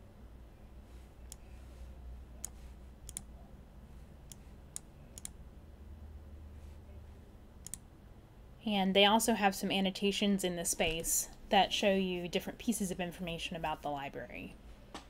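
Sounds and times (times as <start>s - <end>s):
faint low hum: 0.0s - 15.0s
computer mouse clicking: 2.4s - 3.3s, 4.3s - 5.4s, 7.6s - 7.8s.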